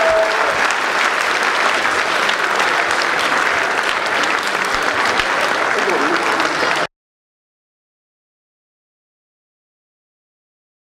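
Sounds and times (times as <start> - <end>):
large crowd applauding: 0.0 - 6.9.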